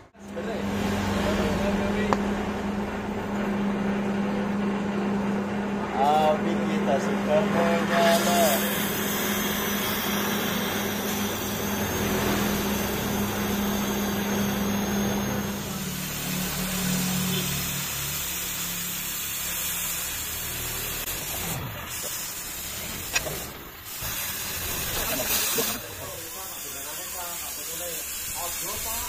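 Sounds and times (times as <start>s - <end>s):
lathe motor humming: 0.0s - 19.5s
cutting torch hissing: 7.6s - 29.0s.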